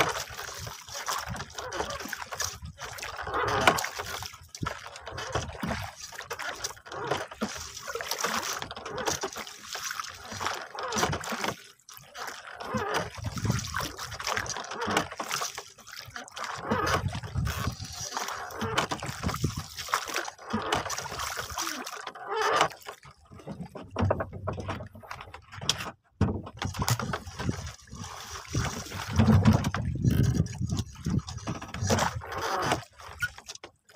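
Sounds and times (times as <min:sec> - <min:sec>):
water lapping against wooden boat: 0:00.0 - 0:33.9
wind buffeting microphone: 0:27.0 - 0:32.2.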